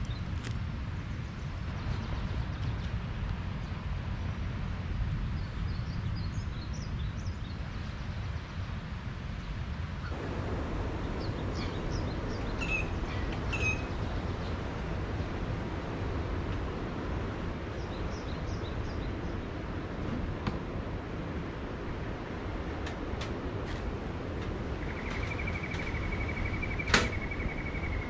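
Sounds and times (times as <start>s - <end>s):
low outdoor rumble: 0.0s - 28.0s
small birds chirping: 10.0s - 15.0s, 17.7s - 19.6s, 24.5s - 28.0s.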